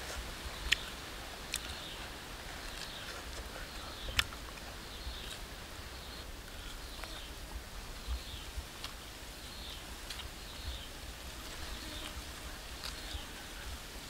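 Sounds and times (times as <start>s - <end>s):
mouth clicks: 0.6s - 2.0s, 2.6s - 5.4s.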